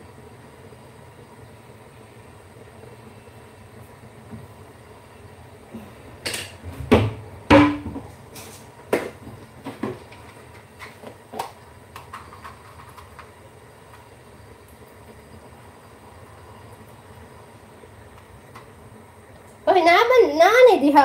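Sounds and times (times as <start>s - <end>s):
kitchen items knocking and clattering: 6.3s - 8.1s, 8.9s - 13.3s.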